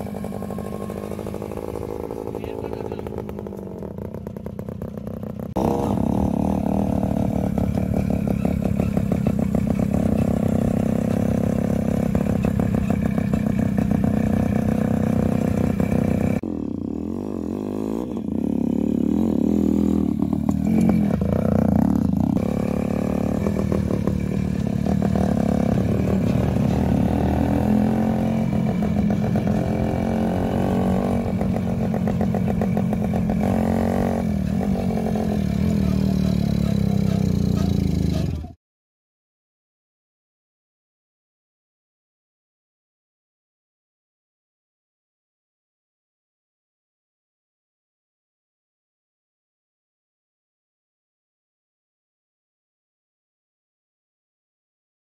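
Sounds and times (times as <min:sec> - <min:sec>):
motorcycle engine revving: 0:00.0 - 0:38.6.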